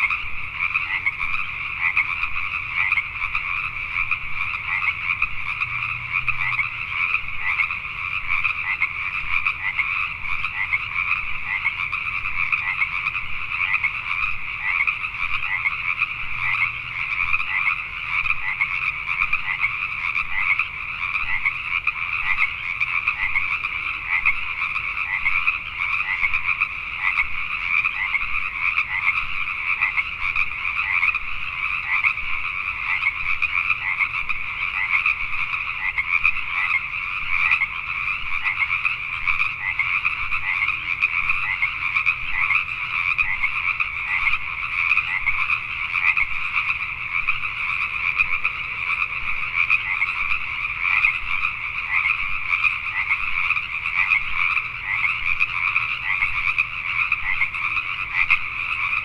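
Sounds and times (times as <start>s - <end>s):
chorus of frogs croaking: 0.0s - 59.0s.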